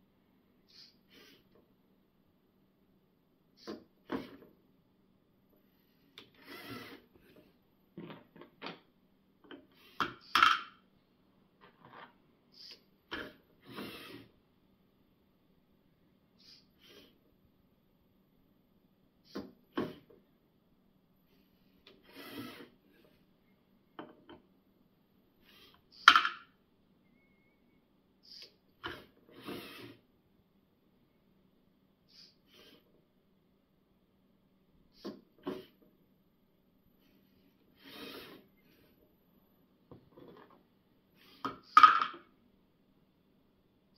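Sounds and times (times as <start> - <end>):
robot arm motors and gears: 6.3 - 7.5, 22.0 - 23.2
small motor noise: 6.4 - 7.4, 13.6 - 14.3, 22.0 - 23.1, 28.3 - 30.0.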